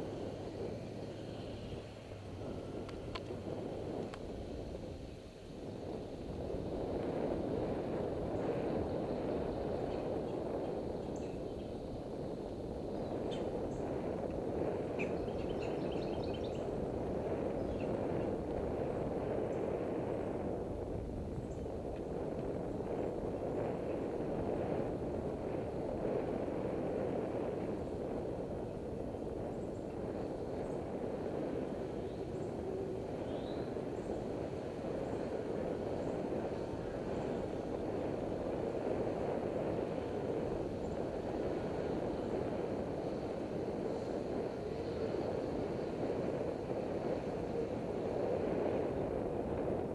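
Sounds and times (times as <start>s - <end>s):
bicycle tyres on pavement: 0.0s - 49.9s
wind on microphone: 0.0s - 49.9s.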